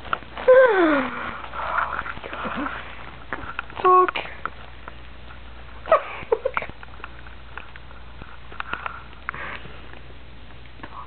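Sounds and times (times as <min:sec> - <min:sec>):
faint clicks and rustling: 0:06.4 - 0:11.0.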